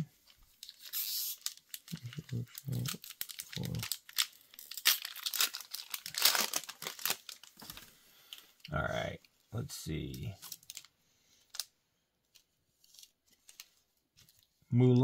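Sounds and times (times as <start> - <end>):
foil wrappers crinkling and tearing: 0.2 - 8.8, 10.1 - 11.7.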